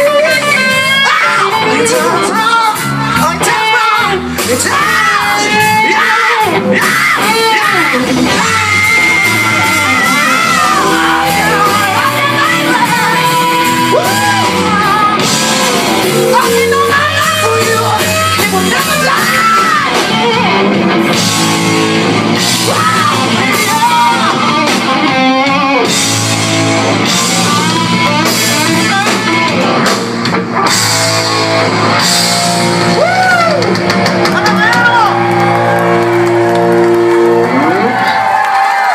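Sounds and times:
man singing: 0:00.0 - 0:15.4, 0:16.0 - 0:20.5, 0:22.6 - 0:25.6, 0:27.0 - 0:29.8
bass: 0:00.0 - 0:38.9
drums: 0:00.0 - 0:38.9
electric guitar: 0:00.0 - 0:38.9.

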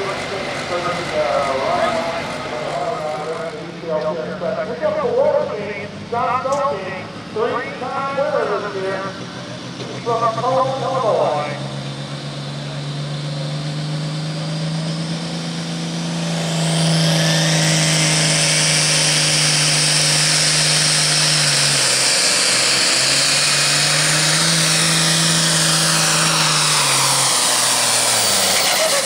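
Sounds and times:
tractor diesel engine revving: 0:00.0 - 0:29.0
turbo whine: 0:00.0 - 0:29.0.

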